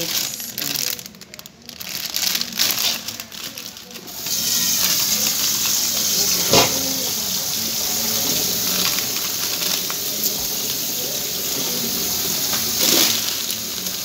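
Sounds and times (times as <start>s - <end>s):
plastic bags crinkling: 0.0s - 14.0s
tap running into metal sink: 6.3s - 7.1s.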